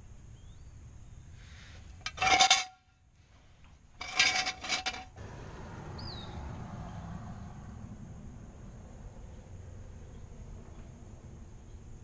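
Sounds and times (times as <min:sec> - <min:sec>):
metal jack stand clanking: 0:02.0 - 0:02.8, 0:04.0 - 0:05.2.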